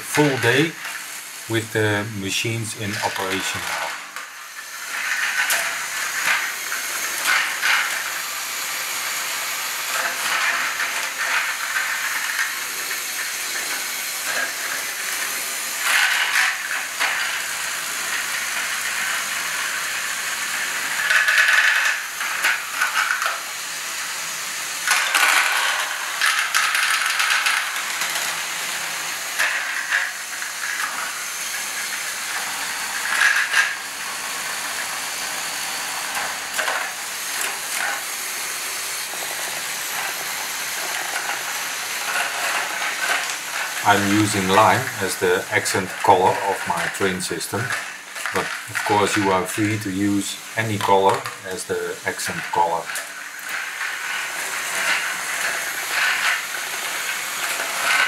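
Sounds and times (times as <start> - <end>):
whirr of small plastic gears: 2.9 - 38.1, 38.8 - 58.0
plastic balls clattering: 24.9 - 28.4, 42.0 - 49.8.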